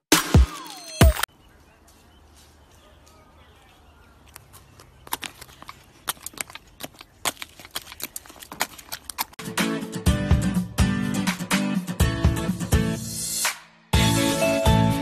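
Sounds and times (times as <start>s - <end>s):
wombat crunching a biscuit: 4.3s - 9.4s.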